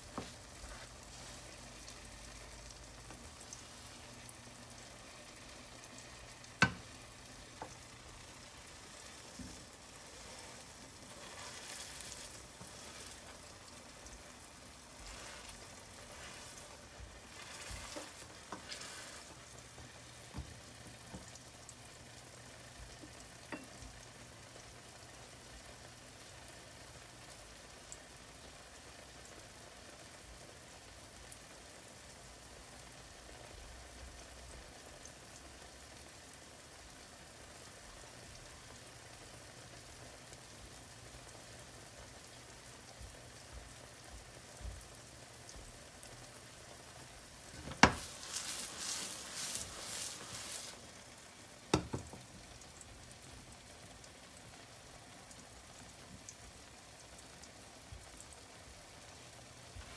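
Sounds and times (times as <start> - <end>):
pancake sizzling in a pan: 0.0 - 59.9
pan clunking on hob: 47.6 - 48.4, 51.7 - 52.3.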